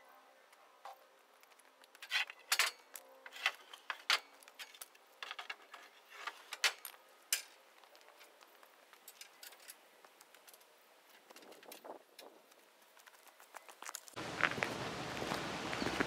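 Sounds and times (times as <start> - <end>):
metal ramps clanking on steel gate: 2.0 - 7.6.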